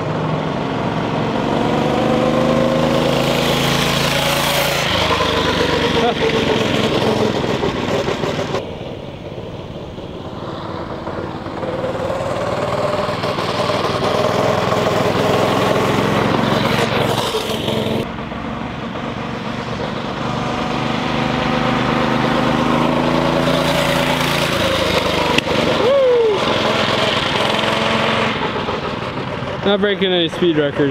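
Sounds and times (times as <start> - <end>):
go-kart engine running: 0.0 - 30.9.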